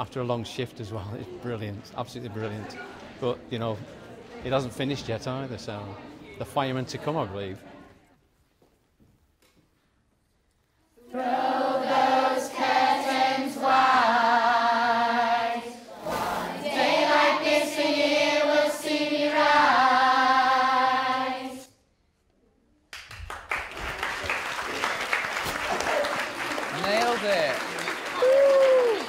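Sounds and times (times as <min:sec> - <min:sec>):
group of voices singing: 0:11.0 - 0:21.7
people clapping: 0:22.9 - 0:29.0.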